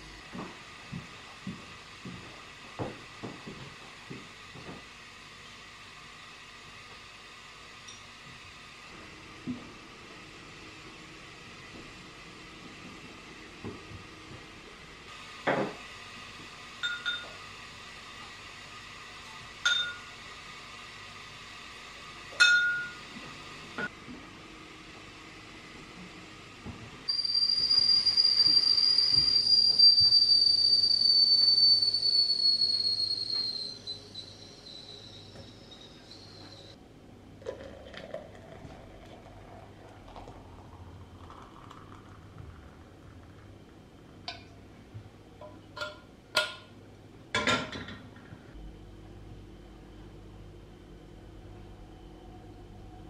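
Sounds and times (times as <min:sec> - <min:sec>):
ceramic mug and metal jug clinking: 0:16.8 - 0:17.3, 0:19.7 - 0:20.1, 0:22.4 - 0:23.0
hot water pouring into a pot: 0:37.4 - 0:43.5.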